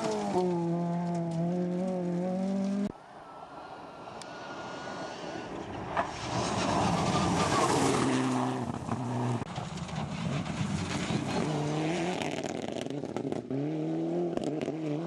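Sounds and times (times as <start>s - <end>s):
tyres crunching on gravel: 0.0s - 2.2s
rally car engines revving: 5.6s - 15.0s.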